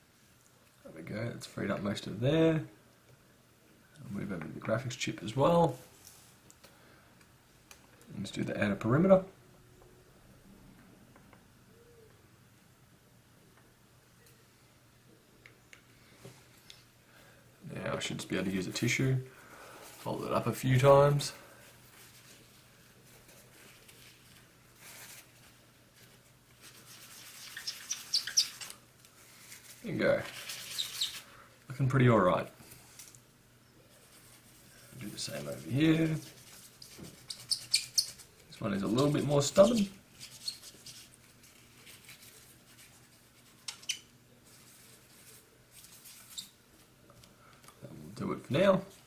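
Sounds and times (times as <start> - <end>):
paper tissue rubbing: 19.7 - 31.4, 33.9 - 46.6
sharp scratches: 30.2 - 31.3, 35.1 - 41.2.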